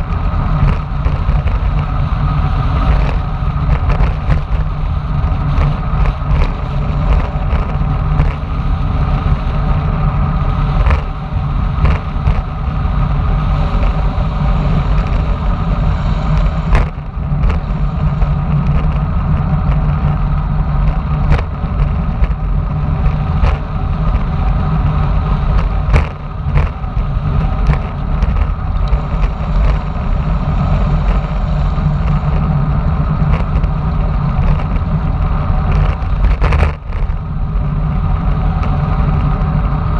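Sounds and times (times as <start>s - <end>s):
bike tyre rumble on asphalt: 0.0s - 39.9s
wind rushing over microphone: 0.0s - 39.9s.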